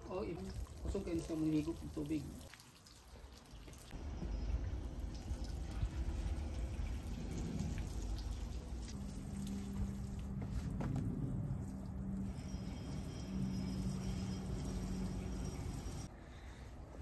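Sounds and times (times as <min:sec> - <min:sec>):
low rumble: 0:03.9 - 0:16.0
steady low hum: 0:03.9 - 0:17.0
watering can splashing on soil: 0:05.0 - 0:10.8.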